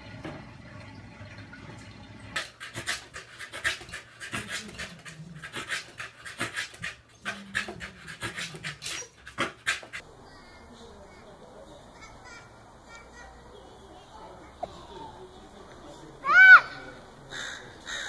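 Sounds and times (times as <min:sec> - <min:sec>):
dog panting hard: 0:02.4 - 0:10.0.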